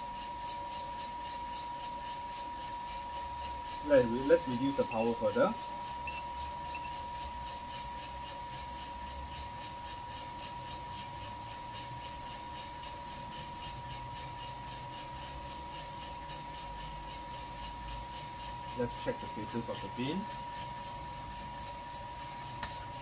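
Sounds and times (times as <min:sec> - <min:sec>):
coffee beans tumbling in drum: 0:00.0 - 0:23.0
fan humming: 0:00.0 - 0:23.0
steady high whine: 0:03.8 - 0:07.4.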